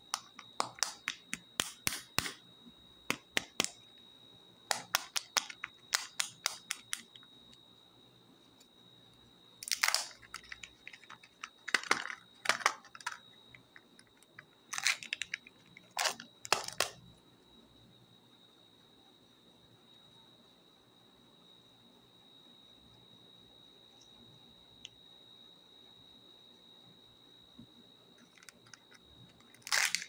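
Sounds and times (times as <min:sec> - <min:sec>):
plastic wrapper crinkling and tearing: 0:09.6 - 0:13.2, 0:14.7 - 0:17.0, 0:29.5 - 0:30.0.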